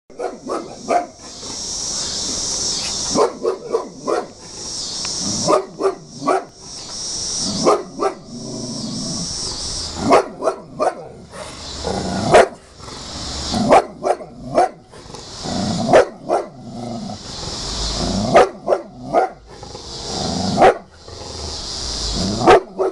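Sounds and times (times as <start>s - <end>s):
dog barking: 0.2s - 1.2s, 3.1s - 4.4s, 5.4s - 6.5s, 7.6s - 8.2s, 10.0s - 11.2s, 12.3s - 12.6s, 13.7s - 14.8s, 15.9s - 16.5s, 18.3s - 19.4s, 20.6s - 20.9s, 22.4s - 22.9s.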